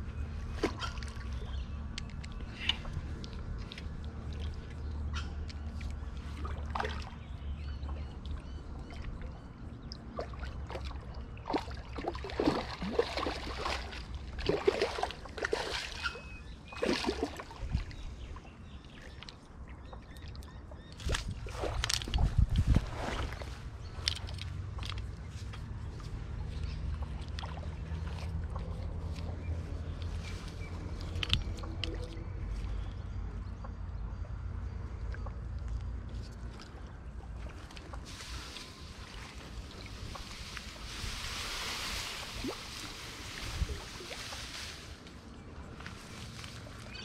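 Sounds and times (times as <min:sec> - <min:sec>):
fish splashing at water surface: 0:37.4 - 0:44.9.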